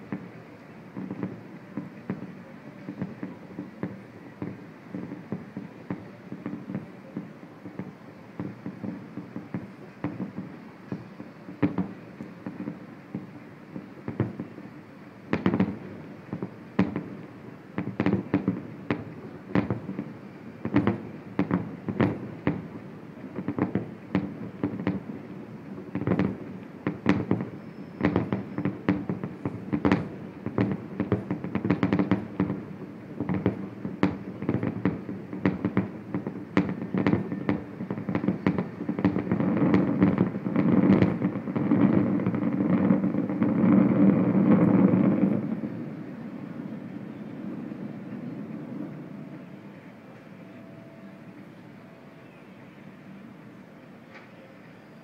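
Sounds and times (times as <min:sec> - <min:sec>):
fireworks bangs and booms: 0:00.0 - 0:52.4.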